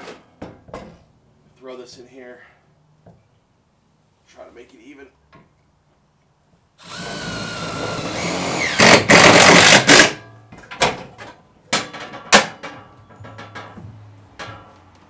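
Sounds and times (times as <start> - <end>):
cordless drill whining: 6.8 - 10.1.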